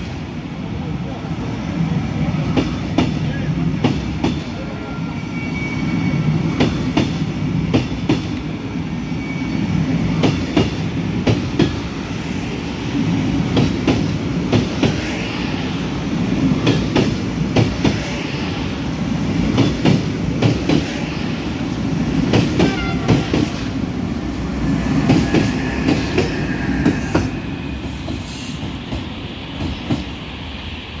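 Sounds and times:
low train rumble: 0.0 - 31.0
train wheels clacking over rail joints: 2.5 - 3.2, 3.8 - 4.5, 6.6 - 8.5, 10.2 - 11.9, 13.5 - 15.2, 16.6 - 18.2, 19.4 - 21.1, 22.2 - 23.8, 25.0 - 30.1
faint wheel squeal: 4.8 - 6.3, 9.1 - 9.8.

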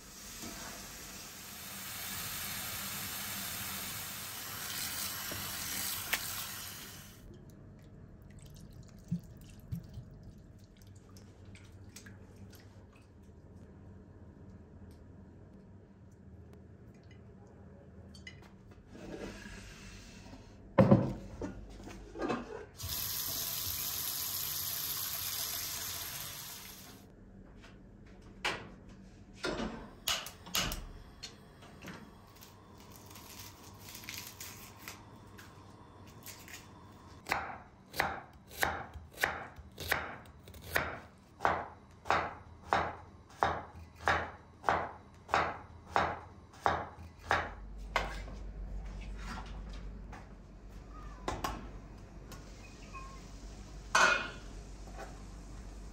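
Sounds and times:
water running from tap: 1.4 - 7.1, 22.8 - 27.0
knife chopping on cutting board: 37.2 - 48.2.

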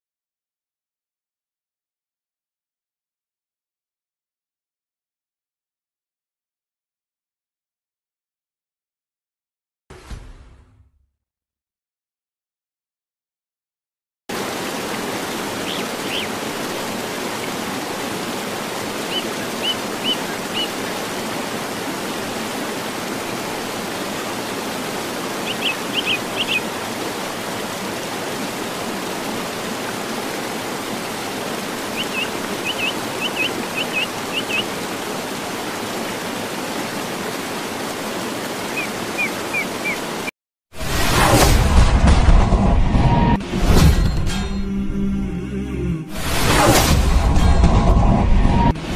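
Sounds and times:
running water: 14.3 - 41.2.

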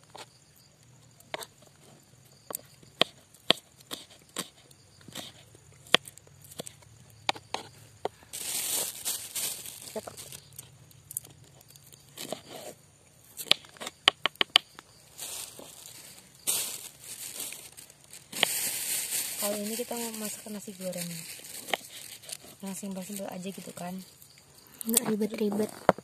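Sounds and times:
rustle: 7.5 - 14.0, 14.8 - 26.0.

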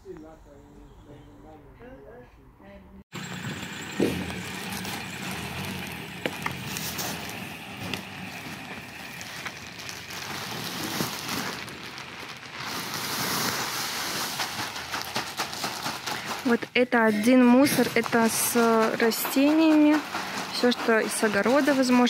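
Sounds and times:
leaves sliding into metal skip: 3.2 - 16.2
plastic bags rustling: 3.2 - 22.0.

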